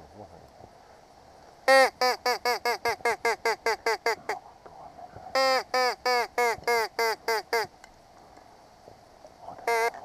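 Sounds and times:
duck call quacks: 1.7 - 4.4, 5.4 - 7.7, 9.7 - 10.0.

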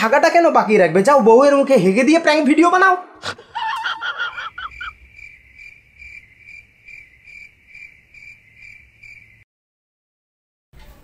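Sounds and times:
crickets chirping: 3.5 - 9.5.

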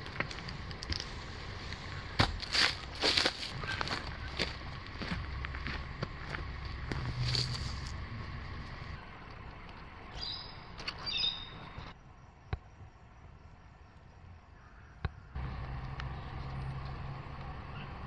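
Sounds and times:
low rumble: 0.0 - 10.7
bird chirps: 10.1 - 11.9.

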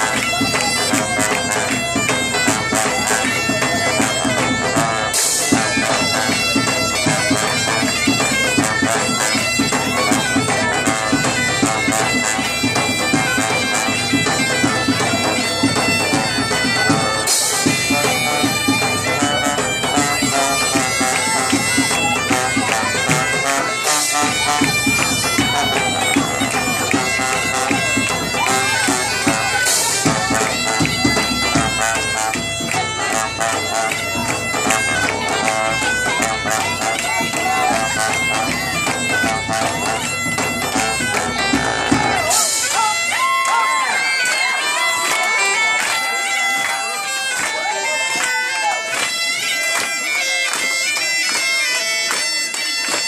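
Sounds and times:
steady beat: 0.0 - 43.4
bagpipes playing dance tune: 0.0 - 53.0
trombone and brass: 2.5 - 15.3, 16.0 - 42.7.

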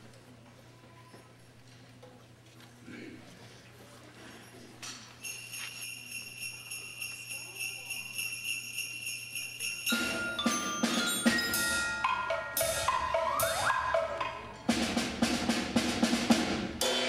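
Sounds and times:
sleigh bells jingling: 5.2 - 14.6
xylophone and bell notes: 5.2 - 14.7
drum hits: 9.9 - 17.0.

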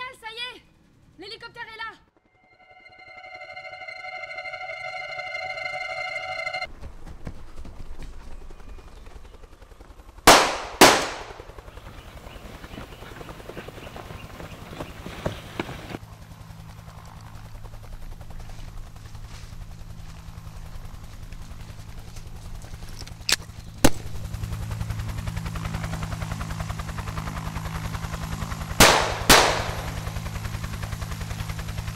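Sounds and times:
helicopter rotor chopping: 2.1 - 31.9
steady electronic tone: 2.3 - 6.7
gunshots: 10.3 - 11.5, 28.8 - 30.2.

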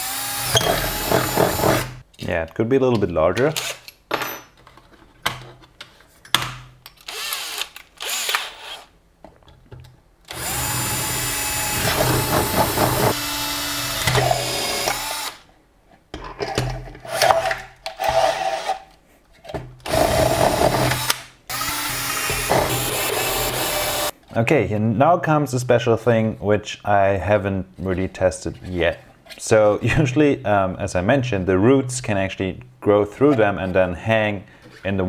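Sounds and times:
drill boring through plastic: 0.0 - 2.0, 7.1 - 8.9, 10.3 - 15.4, 19.9 - 24.1.

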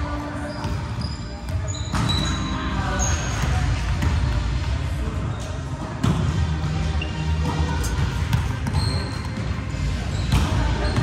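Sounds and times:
music: 0.0 - 11.0
sneaker squeak: 0.1 - 3.7, 5.2 - 5.8, 6.8 - 11.0.

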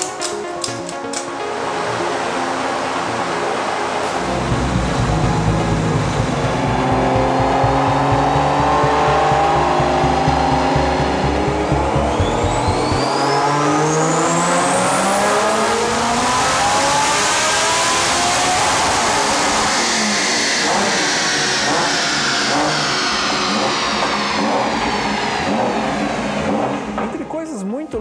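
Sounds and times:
car engine revving: 1.6 - 27.5
turbo whistle: 8.6 - 14.2, 18.8 - 25.9.

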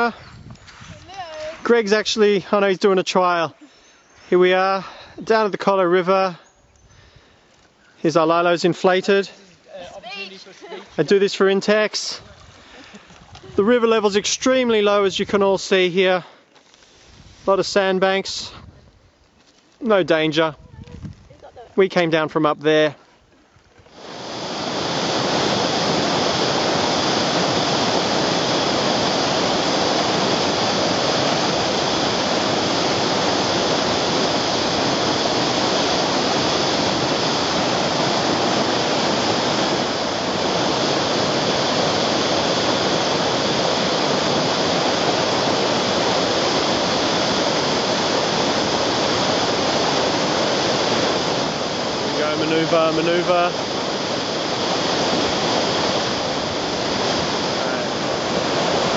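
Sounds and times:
rush of churning water: 23.9 - 58.9.

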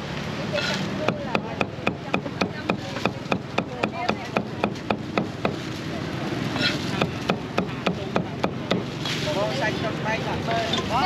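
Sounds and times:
cleaver chopping on wooden block: 0.6 - 5.6.

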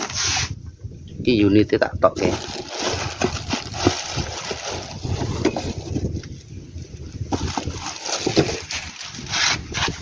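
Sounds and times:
plastic bag crinkling: 2.2 - 6.0, 7.3 - 9.5.

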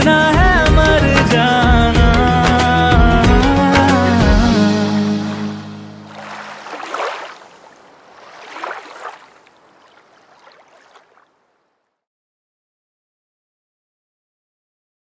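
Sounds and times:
sea waves washing onto beach: 6.1 - 11.4.

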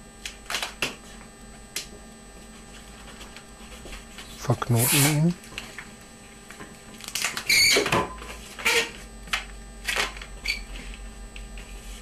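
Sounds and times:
rubbery balloon squeaks: 7.4 - 7.9, 8.6 - 9.0.

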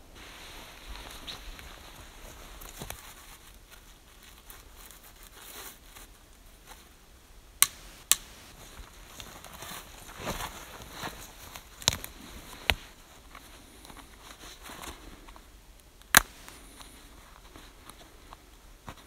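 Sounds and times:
twigs rustling and crackling: 0.2 - 7.0, 7.6 - 19.0
twigs snapping: 7.6 - 14.1, 15.8 - 16.9.

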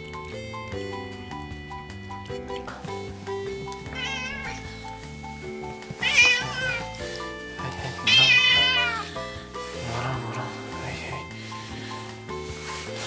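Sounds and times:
background music: 0.0 - 13.0
cat meowing: 3.8 - 4.8, 6.0 - 9.2.

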